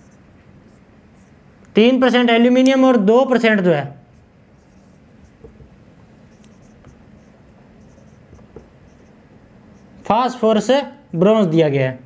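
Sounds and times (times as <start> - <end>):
marker scratching on whiteboard: 0.0 - 1.4, 4.1 - 10.1
soft marker ticks: 6.4 - 7.0.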